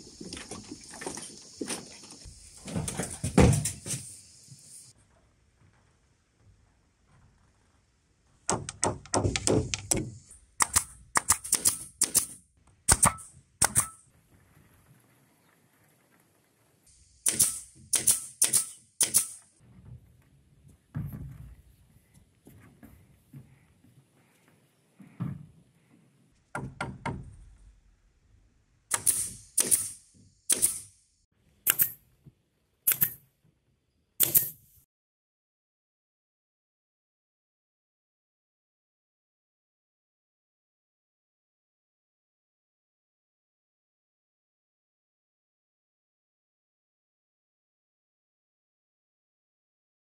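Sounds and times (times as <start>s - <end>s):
nail gun firing into bamboo: 8.5s - 14.0s, 17.2s - 19.5s, 28.9s - 31.0s, 31.7s - 32.0s, 32.9s - 33.2s, 34.2s - 34.8s.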